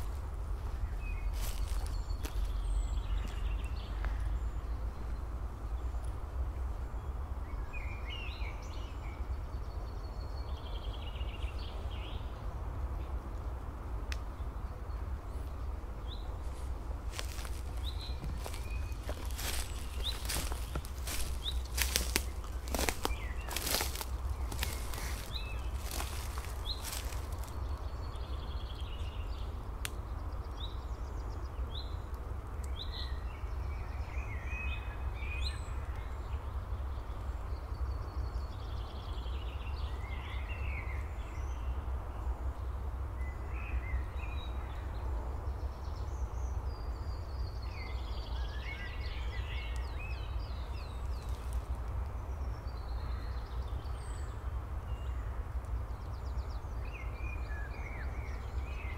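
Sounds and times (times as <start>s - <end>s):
steady low rumble: 0.0s - 7.6s, 9.1s - 31.2s
small birds chirping and trilling: 0.0s - 58.9s.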